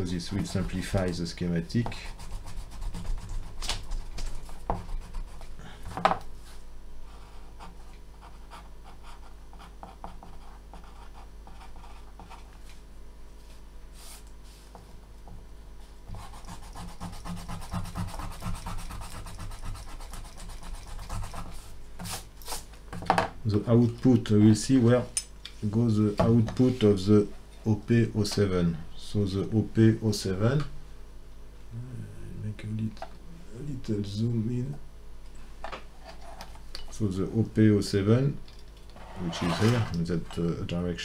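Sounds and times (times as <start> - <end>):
eraser rubbing on paper: 0.3 - 1.0, 1.9 - 5.5, 16.1 - 22.7
pencil scratching on paper: 0.3 - 1.0, 1.8 - 5.5, 7.2 - 12.5, 16.1 - 22.2.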